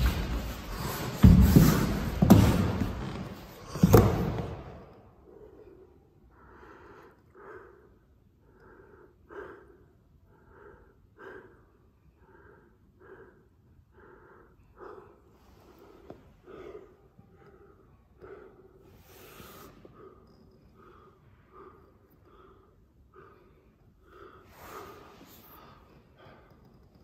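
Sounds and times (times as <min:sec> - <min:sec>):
heavy thuds on wooden floor: 0:00.0 - 0:04.6
person breathing heavily: 0:00.0 - 0:27.0.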